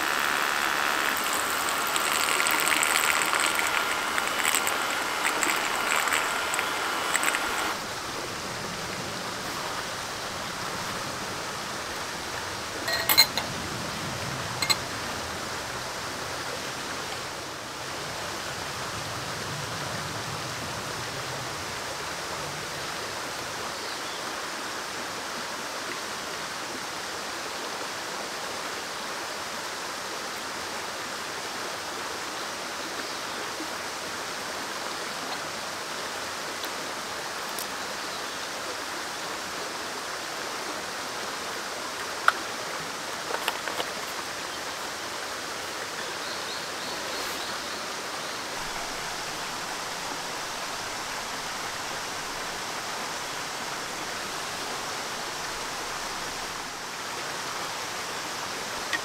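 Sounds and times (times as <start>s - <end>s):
stream rushing: 0.0s - 59.0s.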